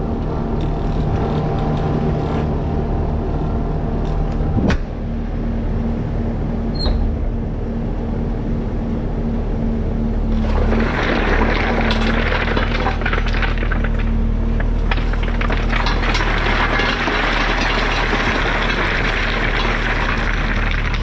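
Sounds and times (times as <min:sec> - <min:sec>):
loader engine running: 0:00.0 - 0:21.0
short high squeak: 0:06.7 - 0:07.1.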